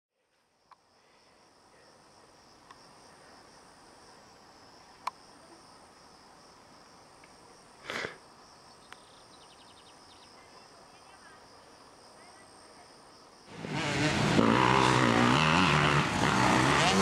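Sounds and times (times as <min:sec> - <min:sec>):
high-pitched insect song: 0:00.3 - 0:13.6.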